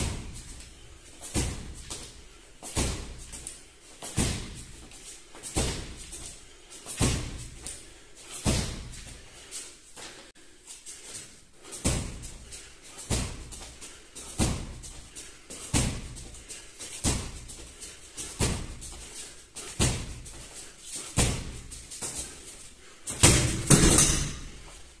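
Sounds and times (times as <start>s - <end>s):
sharp punch thuds: 1.2s - 2.0s, 2.7s - 3.2s, 4.1s - 4.7s, 5.6s - 6.0s, 8.4s - 9.0s, 11.8s - 12.2s, 13.1s - 13.6s, 14.4s - 14.8s, 15.7s - 16.2s, 17.0s - 17.5s, 18.4s - 18.8s, 19.8s - 20.3s, 21.2s - 21.6s, 23.2s - 24.5s.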